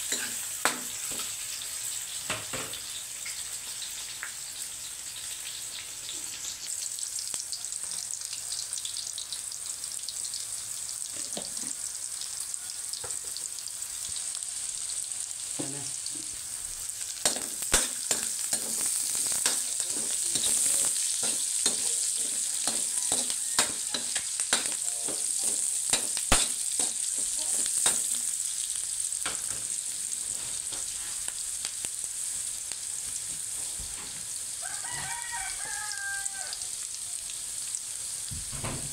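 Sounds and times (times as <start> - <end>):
spatula scraping and knocking wok: 0.0 - 1.5, 15.6 - 28.2
onions sizzling in hot oil: 0.0 - 38.9.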